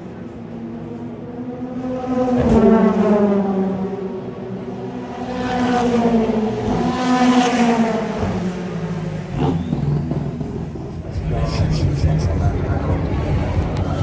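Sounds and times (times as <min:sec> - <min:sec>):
racing car engines passing: 0:00.0 - 0:14.0.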